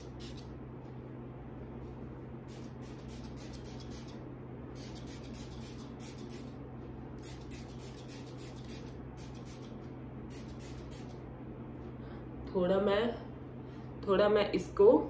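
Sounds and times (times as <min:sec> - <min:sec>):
spray bottle misting: 0:02.5 - 0:04.2, 0:04.8 - 0:06.6, 0:07.2 - 0:11.2.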